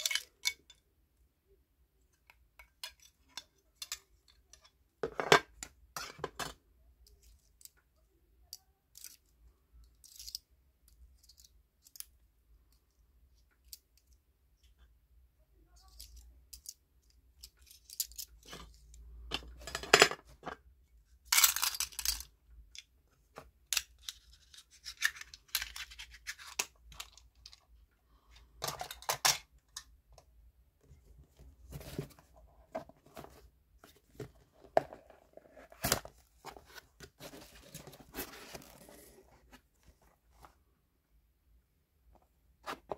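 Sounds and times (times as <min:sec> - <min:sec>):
cardboard rustling and scraping: 0:31.2 - 0:40.6.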